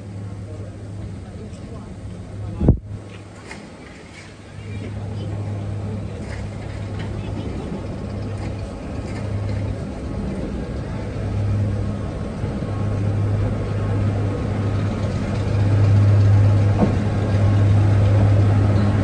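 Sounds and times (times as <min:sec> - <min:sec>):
diesel locomotive engine humming: 0:00.0 - 0:19.0.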